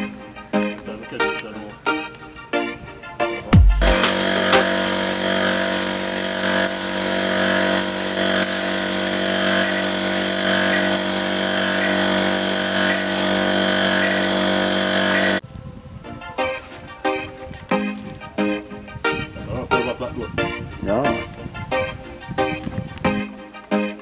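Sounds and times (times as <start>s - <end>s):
air supply motor hum: 3.6s - 15.4s
paint spray hiss: 3.8s - 15.4s.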